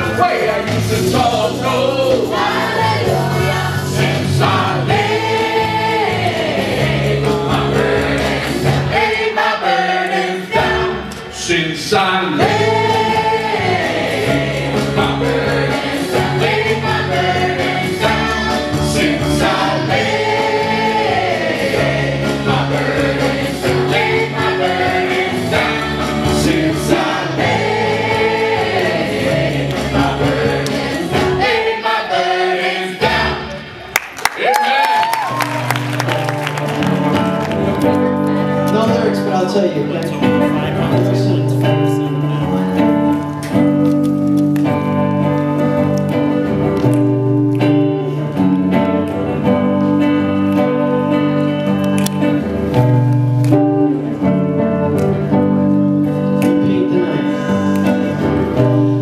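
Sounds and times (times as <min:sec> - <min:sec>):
voices singing together: 0:00.0 - 0:33.9, 0:56.1 - 0:59.0
guitar: 0:00.0 - 0:59.0.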